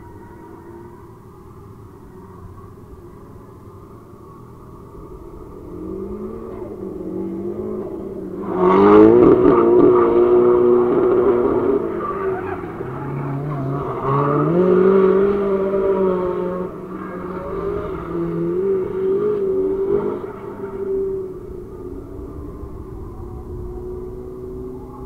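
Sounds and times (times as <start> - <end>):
car engine revving hard: 5.6 - 21.6.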